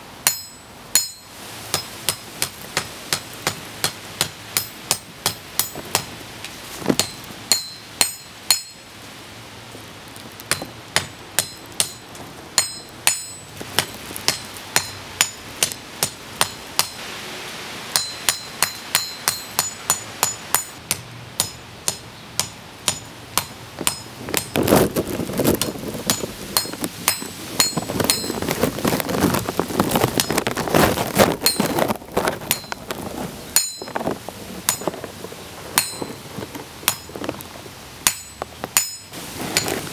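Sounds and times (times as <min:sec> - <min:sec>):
hammer striking hot metal on anvil: 0:00.2 - 0:06.0, 0:07.0 - 0:08.8, 0:10.5 - 0:12.0, 0:12.6 - 0:17.0, 0:17.9 - 0:24.5, 0:26.1 - 0:28.3, 0:33.6 - 0:33.9, 0:35.8 - 0:36.2, 0:36.9 - 0:37.1, 0:38.0 - 0:39.7
rough noise: 0:22.9 - 0:39.9.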